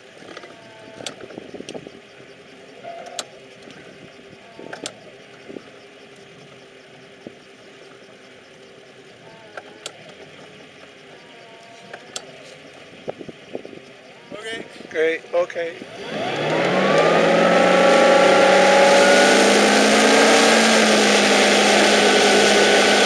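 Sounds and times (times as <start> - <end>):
boat engine idling: 0.0 - 23.0
sharp clicks: 4.4 - 8.8.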